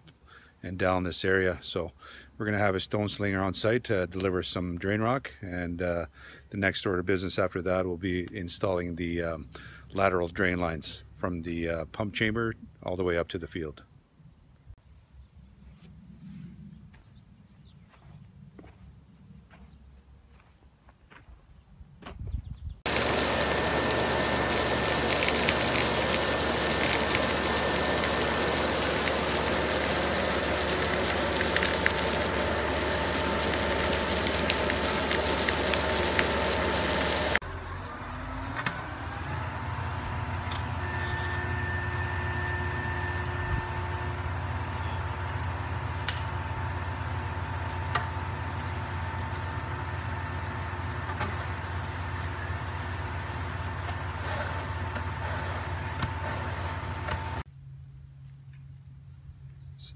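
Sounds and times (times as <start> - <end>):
conveyor throwing rock rushing: 22.9 - 37.4
machine engine running: 22.9 - 37.6
truck engine hum: 22.9 - 57.4.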